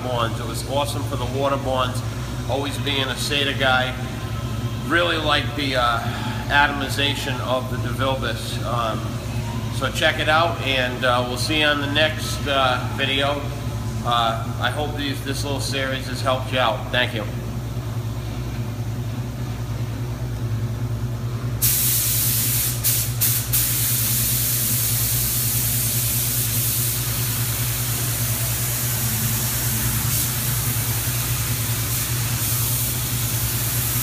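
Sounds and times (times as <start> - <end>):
steady low hum: 0.0 - 34.0
spray gun air hiss: 21.6 - 34.0.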